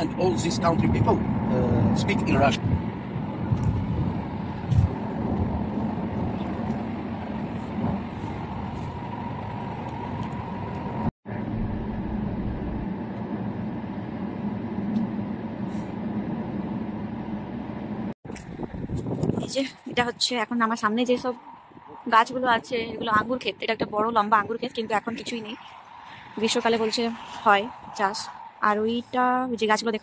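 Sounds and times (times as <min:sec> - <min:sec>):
car interior road rumble: 0:00.0 - 0:20.4.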